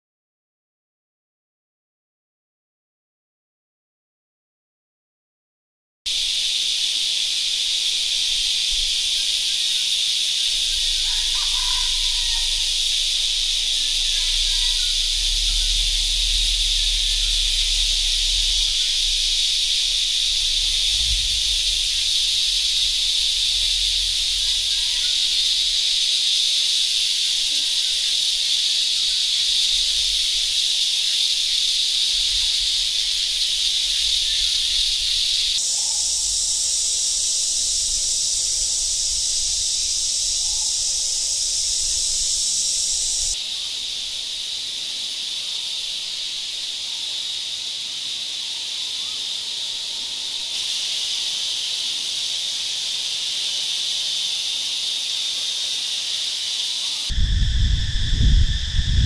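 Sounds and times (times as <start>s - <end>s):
insects droning: 6.1s - 59.0s
low rumble: 10.4s - 26.1s, 29.0s - 43.4s, 57.1s - 59.0s.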